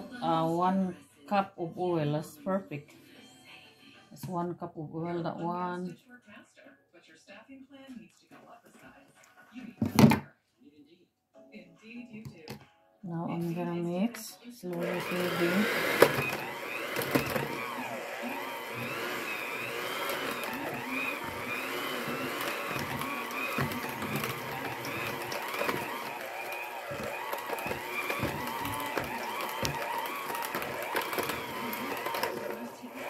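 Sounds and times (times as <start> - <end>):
electric hand mixer whining: 14.7 - 33.0.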